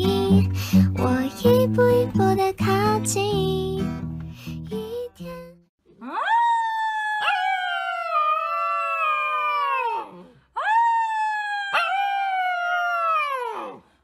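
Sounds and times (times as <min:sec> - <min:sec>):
puppy howling: 0:06.0 - 0:13.8.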